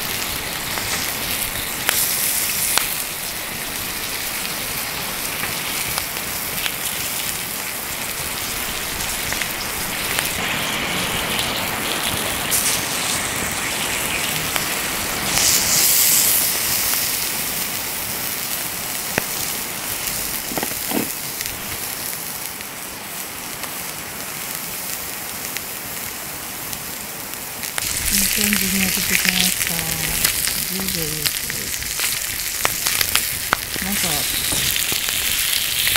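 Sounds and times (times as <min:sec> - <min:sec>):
steaks sizzling on griddle: 0:00.0 - 0:35.9
sharp pops: 0:20.4 - 0:21.2.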